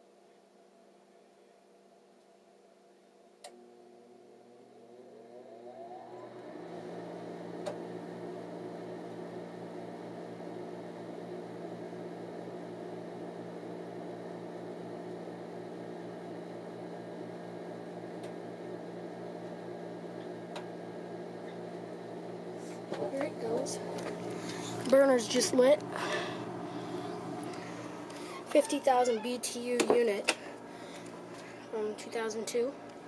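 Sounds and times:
click: 0:03.4 - 0:03.6
furnace motor whining and humming: 0:03.4 - 0:33.0.

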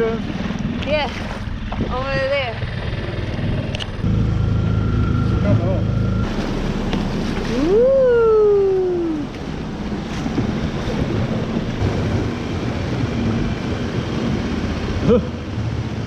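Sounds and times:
outboard motor running: 0:00.0 - 0:16.0
sea and wind noise: 0:00.0 - 0:16.0
loud long rising call: 0:04.0 - 0:09.7.

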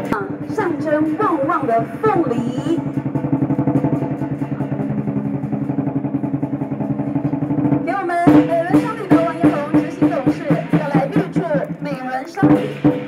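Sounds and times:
voices: 0:00.0 - 0:03.0, 0:04.6 - 0:13.0
fast rolling drum beat: 0:00.0 - 0:13.0
loud separate drum strikes: 0:00.0 - 0:13.0.

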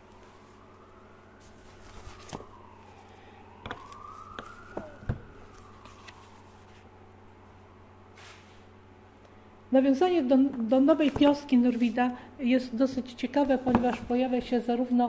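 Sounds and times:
faint siren wailing: 0:00.0 - 0:12.4, 0:13.4 - 0:15.0
paper rustling: 0:01.4 - 0:03.1, 0:03.7 - 0:06.9.

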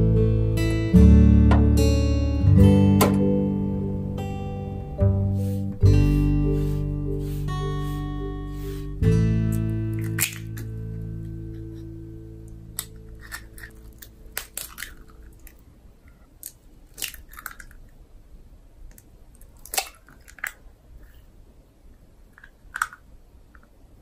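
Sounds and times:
eggs cracking on metal bowl: 0:10.0 - 0:10.7, 0:12.7 - 0:15.6, 0:16.4 - 0:17.9, 0:18.9 - 0:20.6.

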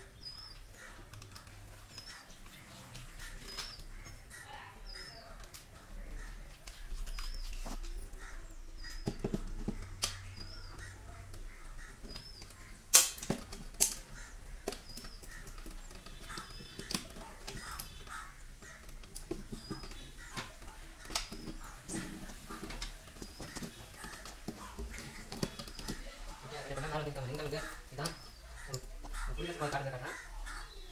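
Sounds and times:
clicks and knocks of breaker parts: 0:12.8 - 0:15.6.

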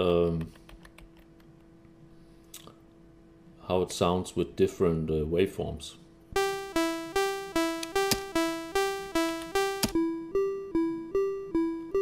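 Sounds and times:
looping two-note synth pattern: 0:06.4 - 0:12.0.

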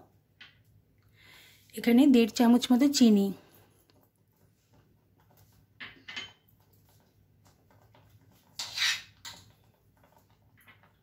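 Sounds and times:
kitchen utensils clattering: 0:05.8 - 0:06.5.

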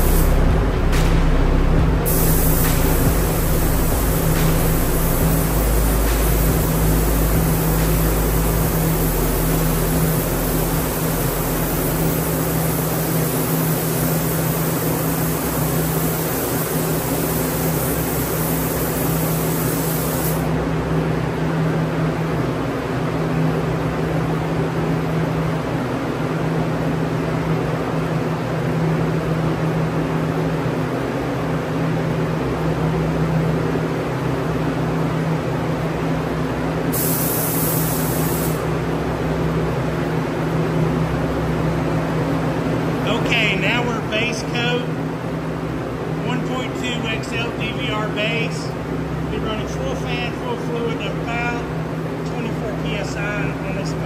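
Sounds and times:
spray gun hissing: 0:00.0 - 0:20.5, 0:36.9 - 0:38.7
steady low hum: 0:00.0 - 0:54.0.

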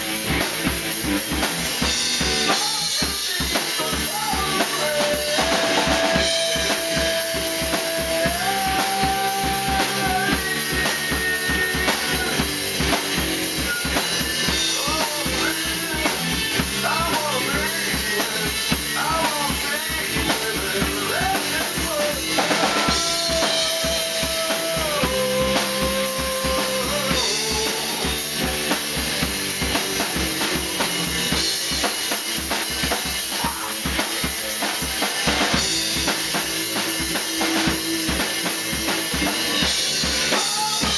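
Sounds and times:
bass guitar: 0:00.0 - 0:40.9
drum kit beat: 0:00.0 - 0:40.9
electric guitar: 0:00.0 - 0:40.9
person singing: 0:02.4 - 0:12.6, 0:13.9 - 0:28.8, 0:33.3 - 0:36.4, 0:37.0 - 0:40.9.

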